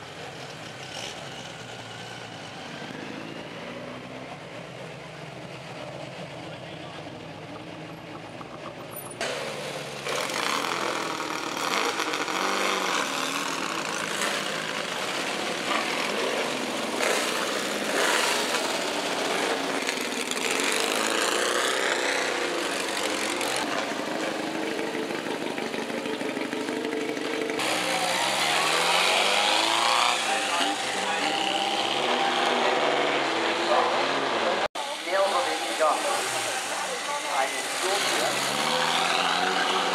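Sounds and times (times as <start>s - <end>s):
racing car engines revving: 0.0s - 39.9s.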